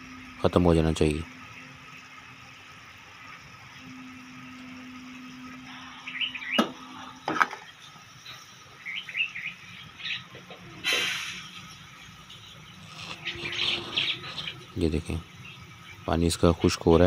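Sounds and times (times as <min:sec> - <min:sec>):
birds chirping: 0:00.2 - 0:17.0
sugar syrup bubbling: 0:11.1 - 0:16.1.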